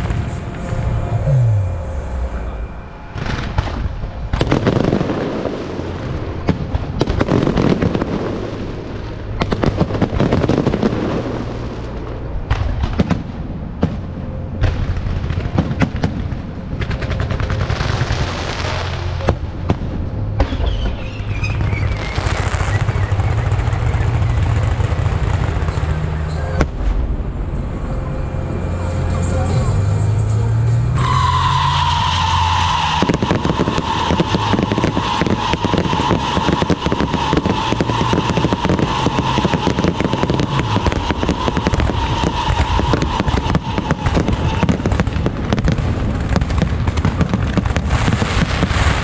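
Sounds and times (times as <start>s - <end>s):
steady low hum: 0.0s - 7.0s
firework crackling: 3.1s - 27.4s, 30.5s - 49.0s
falling whistle: 20.5s - 24.4s, 30.8s - 44.9s
firework shells bursting: 32.6s - 49.0s.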